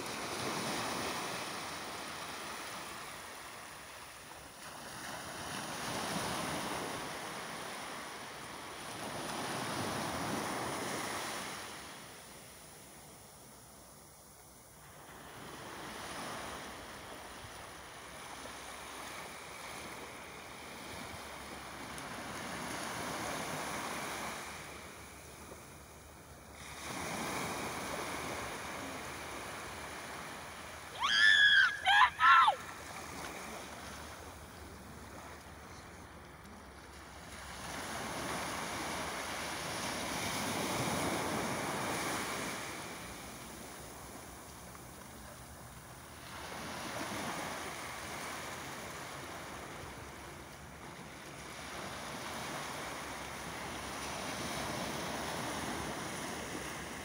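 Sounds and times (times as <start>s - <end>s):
sea surf washing: 0.0s - 57.0s
high pitch-bending cries: 30.9s - 32.7s.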